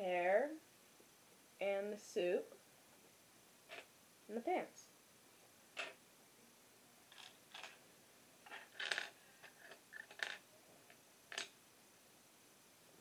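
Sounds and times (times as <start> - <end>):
plastic toy parts clicking: 8.5 - 10.4, 11.3 - 11.5.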